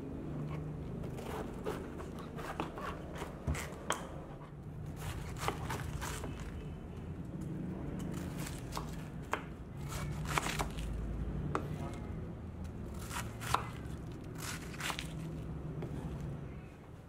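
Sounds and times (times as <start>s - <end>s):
knife cutting cabbage: 0.5s - 4.1s, 4.9s - 6.6s, 8.0s - 11.0s, 12.9s - 15.4s.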